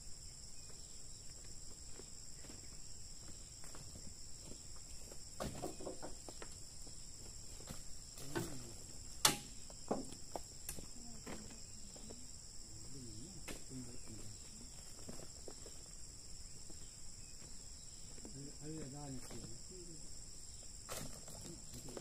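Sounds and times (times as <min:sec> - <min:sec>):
insects chirping: 0:00.0 - 0:22.0
knocks and thuds: 0:05.4 - 0:06.3, 0:08.2 - 0:10.2.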